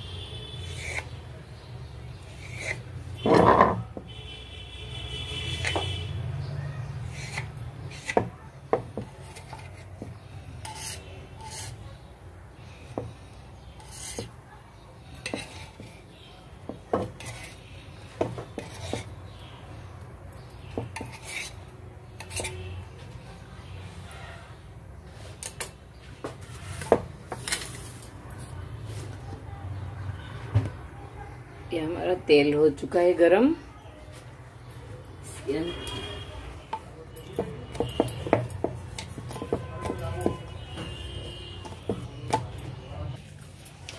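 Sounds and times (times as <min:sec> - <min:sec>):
knife tapping and scraping on board: 0:02.4 - 0:04.1, 0:07.2 - 0:11.8, 0:13.8 - 0:14.4, 0:15.2 - 0:16.0, 0:16.6 - 0:19.2, 0:20.6 - 0:21.6, 0:22.2 - 0:22.6, 0:36.7 - 0:42.8.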